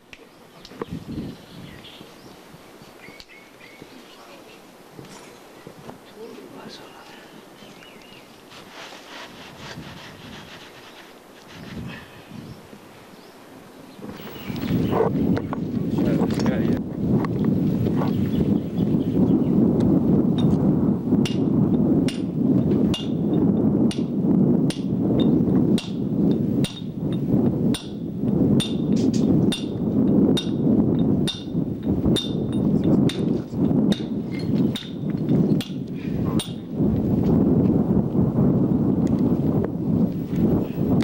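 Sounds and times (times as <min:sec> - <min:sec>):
wind on microphone: 0:00.5 - 0:41.0
hammer striking stone: 0:26.6 - 0:26.9, 0:31.2 - 0:31.6.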